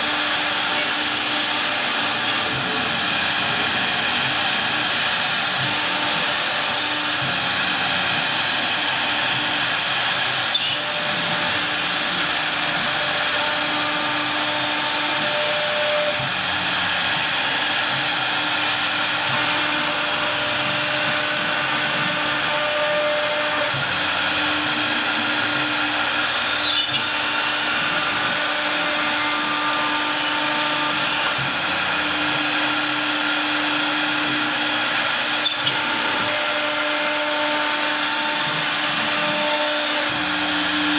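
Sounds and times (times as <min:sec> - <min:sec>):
router spindle machining whine: 0:00.0 - 0:40.9.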